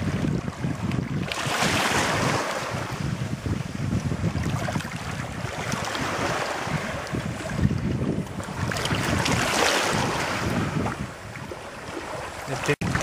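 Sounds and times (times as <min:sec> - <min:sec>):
wind buffeting microphone: 0:00.0 - 0:13.0
seawater sloshing around net: 0:08.4 - 0:11.1.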